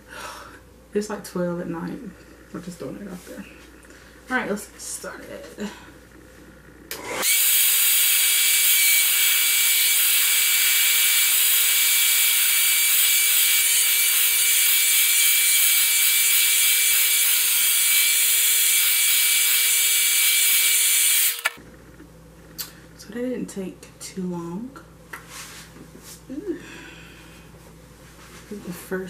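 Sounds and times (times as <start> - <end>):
hair dryer running: 6.9 - 21.6.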